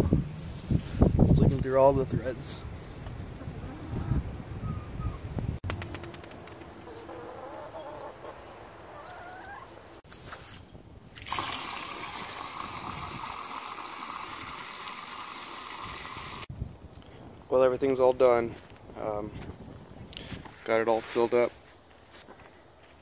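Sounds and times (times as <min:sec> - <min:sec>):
hens clucking: 0:05.0 - 0:10.0
water pouring into metal container: 0:11.2 - 0:16.5.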